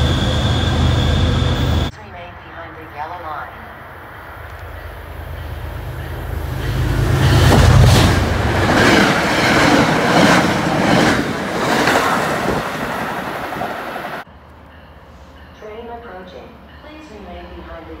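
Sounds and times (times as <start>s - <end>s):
diesel locomotive rumble: 0.0s - 2.4s, 4.2s - 14.5s
train wheels clacking on rails: 4.6s - 14.2s.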